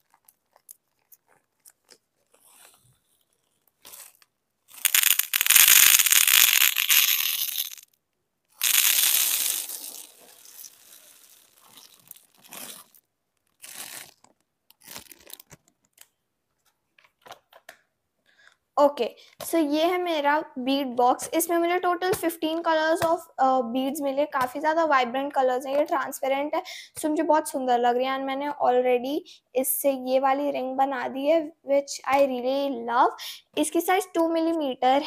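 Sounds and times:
small clicks and rustles: 0:00.0 - 0:08.0
beads pouring into plastic box: 0:04.7 - 0:07.9, 0:08.6 - 0:13.0.

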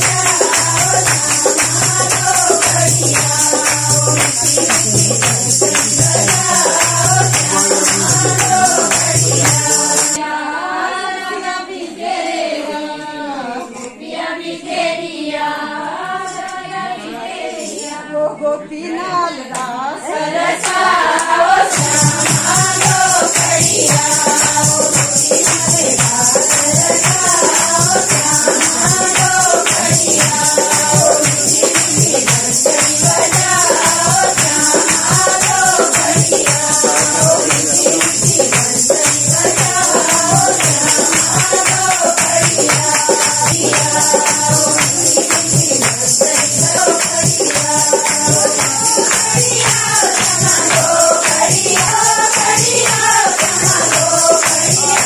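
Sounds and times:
hand-clapping: 0:00.0 - 0:10.2, 0:20.6 - 0:55.0
tambourine-like jingling: 0:00.0 - 0:10.2, 0:21.7 - 0:55.0
women singing folk song: 0:00.0 - 0:55.0.

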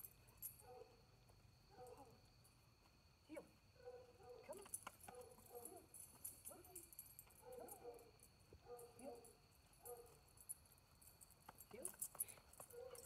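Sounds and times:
dog collar clinking: 0:00.0 - 0:01.0, 0:04.4 - 0:13.0
insects droning: 0:00.0 - 0:13.0.

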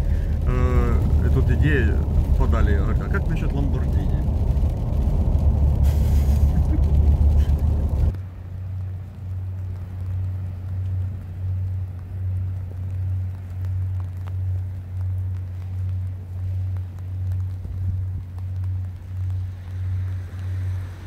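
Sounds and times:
engine and road rumble: 0:00.0 - 0:21.0
low pulsing hum: 0:00.0 - 0:21.0.

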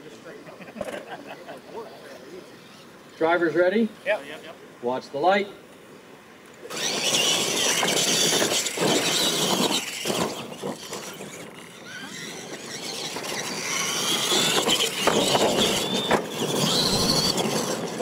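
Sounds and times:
rc truck motors whining: 0:01.6 - 0:04.1, 0:06.5 - 0:18.0.

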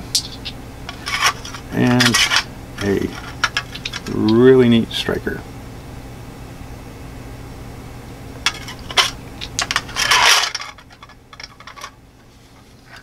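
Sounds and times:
metal tin scraping shut: 0:08.5 - 0:11.9.

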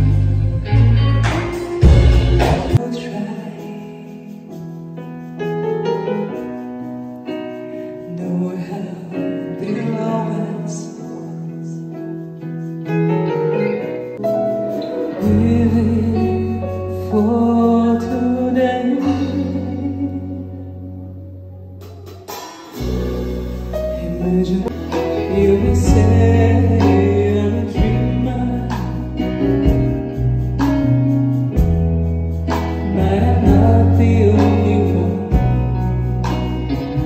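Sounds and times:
deep bass line: 0:00.0 - 0:02.8, 0:22.8 - 0:37.0
electric guitar: 0:00.0 - 0:37.0
keyboard: 0:00.0 - 0:37.0
woman singing: 0:02.8 - 0:04.3, 0:08.1 - 0:11.8, 0:15.0 - 0:20.8, 0:24.0 - 0:28.8.

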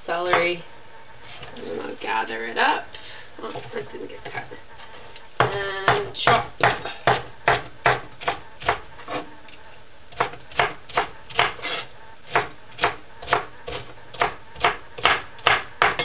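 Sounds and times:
knife chopping on wooden board: 0:05.4 - 0:09.3, 0:10.1 - 0:16.0.

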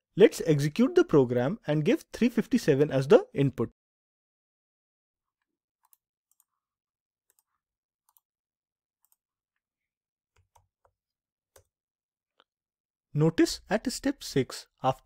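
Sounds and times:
computer mouse clicks: 0:05.8 - 0:06.5.

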